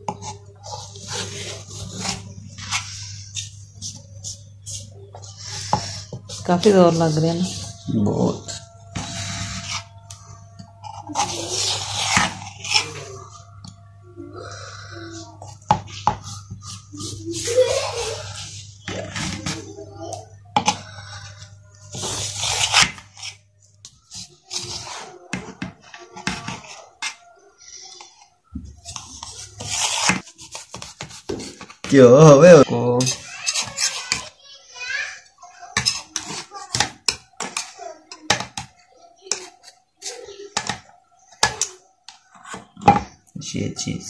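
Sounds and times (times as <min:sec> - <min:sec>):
knife cutting and scraping metal tray: 0:00.1 - 0:13.4, 0:15.4 - 0:19.8, 0:20.6 - 0:27.3, 0:28.8 - 0:31.9, 0:33.0 - 0:34.3, 0:35.7 - 0:38.7, 0:39.3 - 0:41.7.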